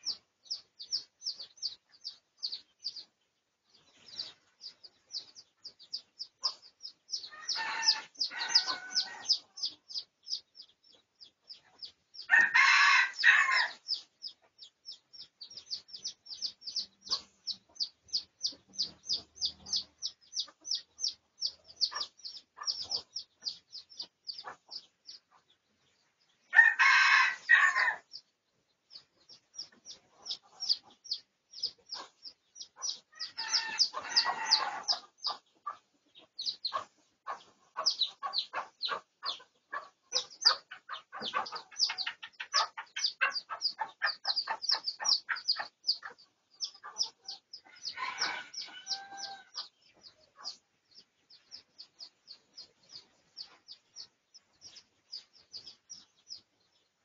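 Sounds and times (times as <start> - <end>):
rooster crowing: 7.3 - 9.4, 12.3 - 13.8, 26.6 - 28.0, 33.2 - 34.9, 47.7 - 49.6.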